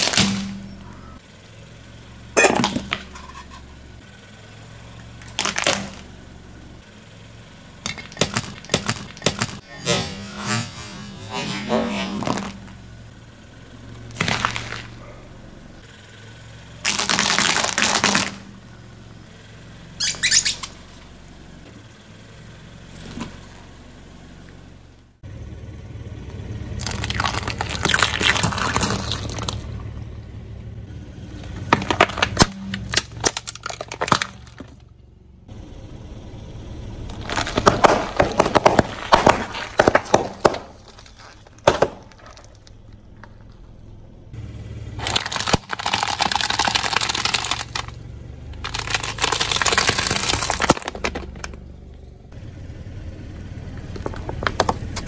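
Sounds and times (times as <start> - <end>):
tyre crushing objects: 0.0 - 0.8, 2.4 - 3.3, 5.2 - 6.1, 7.8 - 10.7, 11.3 - 12.8, 14.1 - 15.2, 16.8 - 18.5, 26.8 - 29.6, 31.5 - 34.8, 37.1 - 42.8, 45.0 - 48.0, 48.6 - 51.6
car low hum: 0.0 - 55.0.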